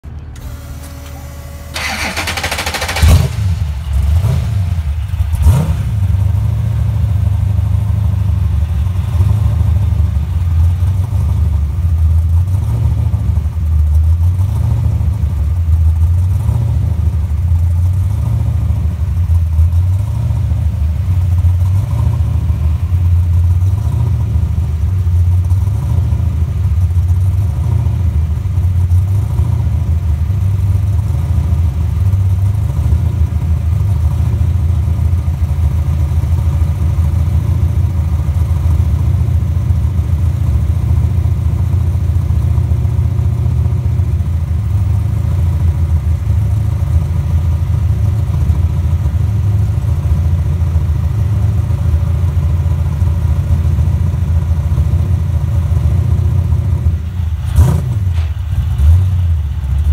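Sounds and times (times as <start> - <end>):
race car engine revving and idling: 0.0 - 59.9
starter motor cranking: 0.3 - 3.5.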